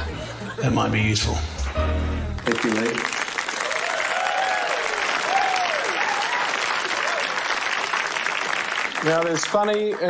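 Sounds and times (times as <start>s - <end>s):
audience applauding: 1.6s - 10.0s
people cheering: 2.5s - 10.0s.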